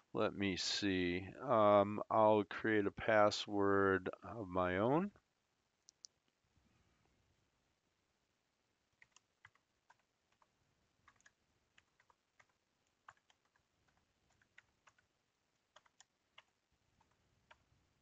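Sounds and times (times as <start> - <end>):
faint computer keyboard typing: 9.0 - 17.7.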